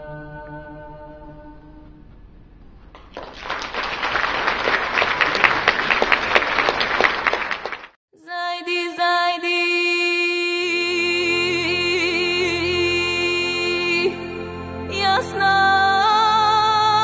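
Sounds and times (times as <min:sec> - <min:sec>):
audience applause: 0:03.0 - 0:08.0
music piece: 0:10.8 - 0:17.0.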